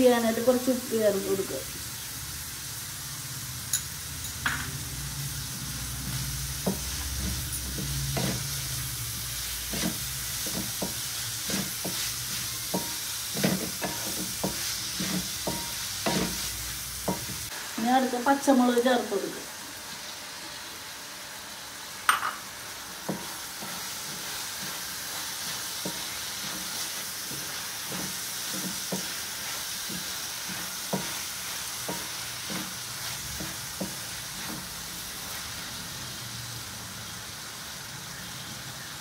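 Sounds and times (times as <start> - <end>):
onions sizzling in hot oil: 0.0 - 39.0
spoon knocking against pan: 12.7 - 16.4, 22.1 - 22.4.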